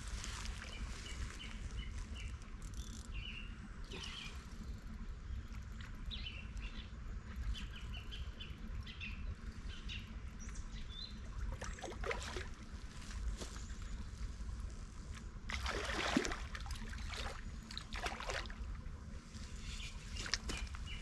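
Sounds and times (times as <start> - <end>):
steady low rumble: 0.0 - 21.0
small birds chirping: 0.3 - 11.2.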